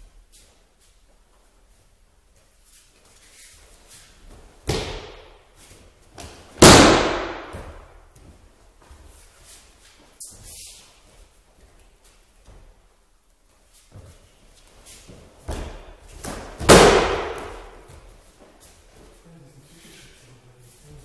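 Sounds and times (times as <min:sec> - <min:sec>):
breakfall slap and body thud: 0:04.3 - 0:05.4, 0:06.1 - 0:08.0, 0:15.4 - 0:18.0
thump on mats: 0:04.6 - 0:05.3, 0:06.2 - 0:07.9, 0:15.4 - 0:18.0.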